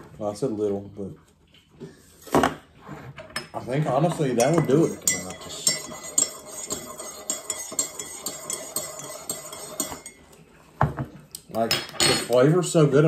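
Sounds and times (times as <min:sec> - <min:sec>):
spoon clinking in ceramic mug: 0:04.4 - 0:10.2.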